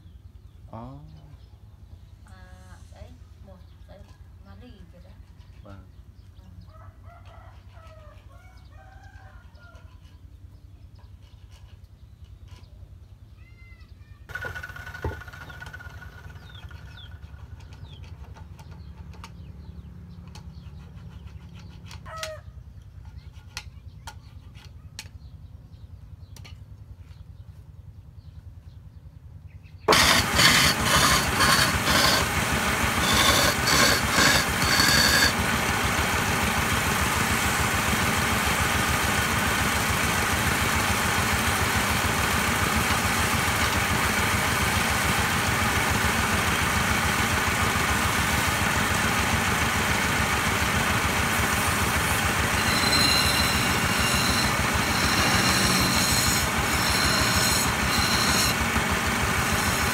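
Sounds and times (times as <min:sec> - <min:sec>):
chickens and rooster calling: 0:06.6 - 0:10.4, 0:22.0 - 0:22.6
wood lathe running: 0:14.3 - 0:17.1, 0:29.9 - 0:59.9
chisel scraping spinning wood: 0:14.3 - 0:19.0, 0:29.9 - 0:59.9.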